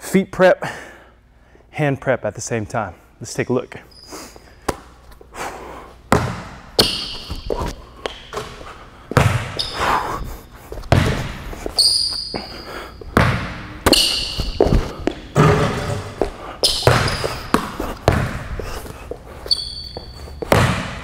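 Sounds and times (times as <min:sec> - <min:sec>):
sneakers squeaking on court: 0:03.9 - 0:05.0, 0:06.1 - 0:21.0
basketball bouncing on court floor: 0:06.1 - 0:09.9, 0:10.8 - 0:12.5, 0:13.1 - 0:18.6, 0:19.6 - 0:21.0.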